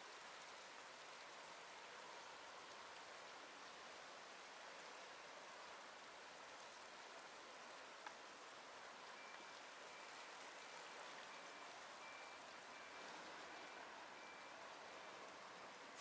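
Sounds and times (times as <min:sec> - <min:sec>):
water flowing in stream: 0:00.0 - 0:16.0
faint high beeps: 0:09.1 - 0:15.3.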